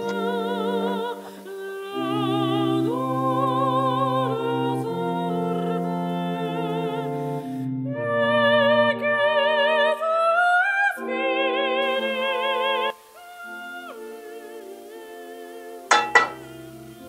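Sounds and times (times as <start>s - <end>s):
slow sung melody with vibrato: 0.0s - 17.0s.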